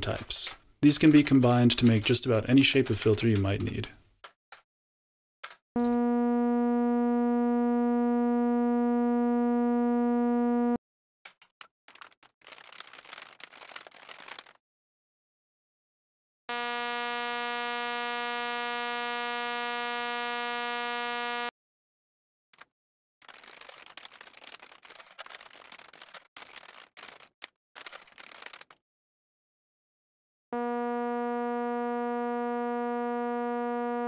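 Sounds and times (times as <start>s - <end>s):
computer keyboard typing: 11.9s - 14.5s, 23.2s - 28.8s.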